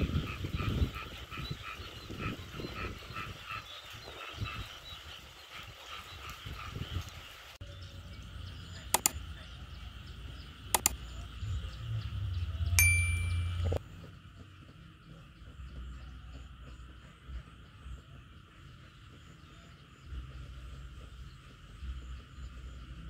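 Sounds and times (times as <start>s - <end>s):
frogs croaking in chorus: 0.0s - 6.9s
sharp clicks: 8.9s - 9.2s, 10.8s - 11.0s.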